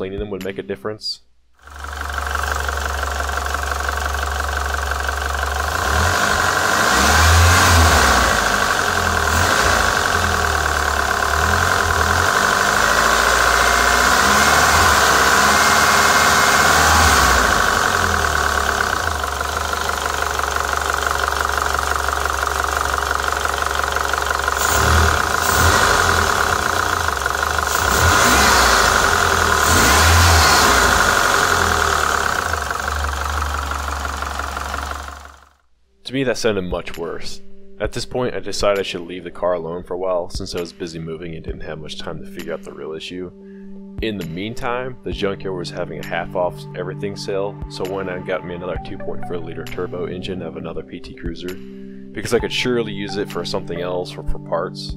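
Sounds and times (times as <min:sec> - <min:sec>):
car engine clattering: 0:01.6 - 0:35.5.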